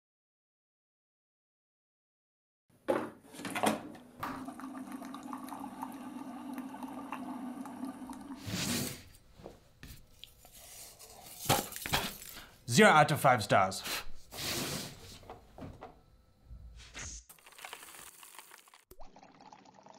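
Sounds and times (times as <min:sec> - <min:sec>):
coffee running into mug: 0:04.2 - 0:08.5, 0:17.3 - 0:19.9
short hiss of air: 0:13.9 - 0:15.1.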